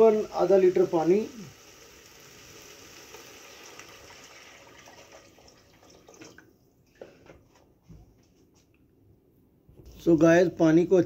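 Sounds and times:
water pouring into a pot: 0.0 - 6.5.

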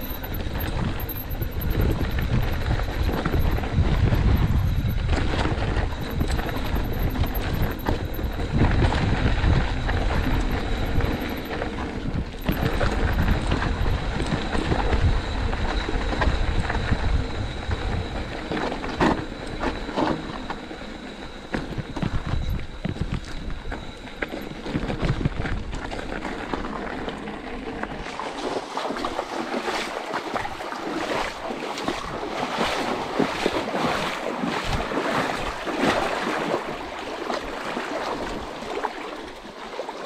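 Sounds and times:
heavy low rumble: 0.0 - 15.2
bike rattling on rough trail: 0.0 - 30.1
wind on microphone: 0.0 - 39.6.

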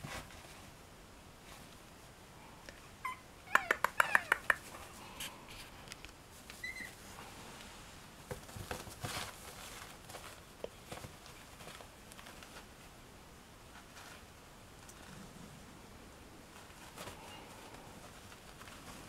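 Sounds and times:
puppy paws pattering on pad: 3.5 - 7.0, 8.3 - 13.0, 16.5 - 19.0
faint squeak: 6.6 - 7.0.

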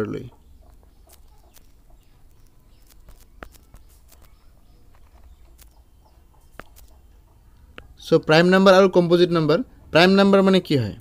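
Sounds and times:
faint clicks: 0.6 - 7.9.

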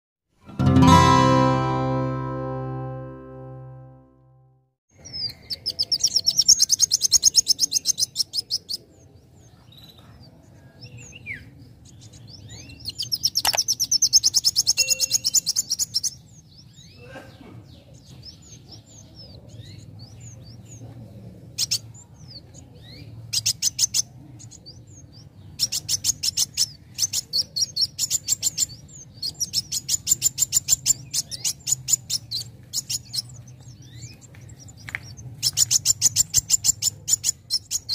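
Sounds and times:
bird chirps: 5.0 - 37.9
bird singing rattling trills: 10.9 - 17.0.

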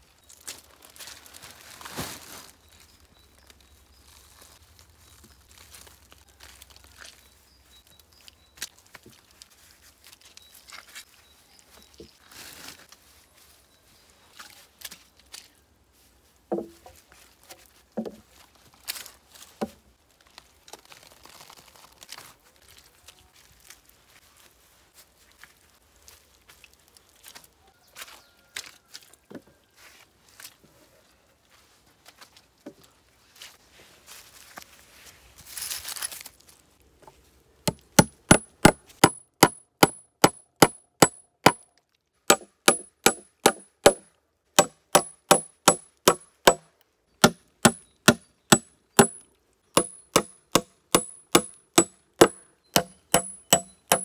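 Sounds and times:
plastic sack rustling: 0.1 - 7.2, 12.1 - 13.2, 17.3 - 25.0
wooden knocks: 16.5 - 16.9
moss being torn: 20.1 - 24.0.

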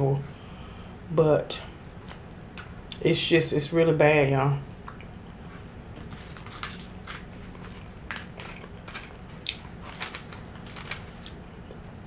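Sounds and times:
chewing: 7.5 - 9.8.

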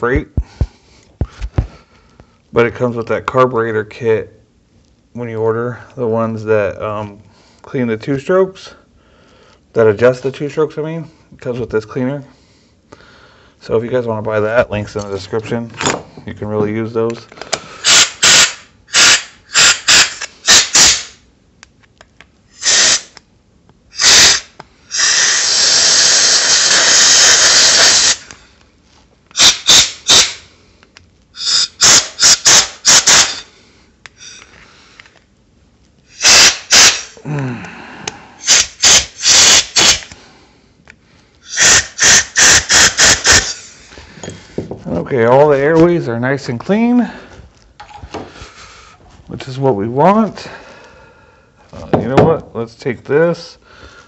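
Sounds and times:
compressed air blasting: 17.8 - 21.2, 22.5 - 23.2, 23.9 - 28.4, 29.3 - 30.5, 31.4 - 34.5, 36.1 - 37.3, 38.4 - 40.3, 41.4 - 43.9.

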